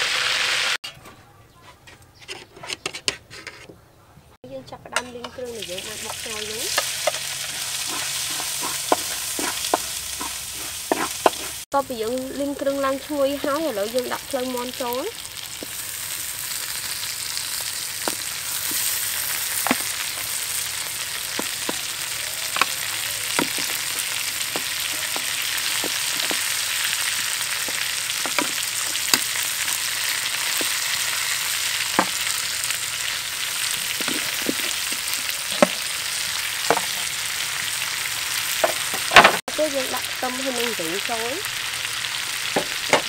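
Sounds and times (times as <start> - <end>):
chicken frying in hot oil: 5.4 - 43.0
oil popping: 15.4 - 37.0.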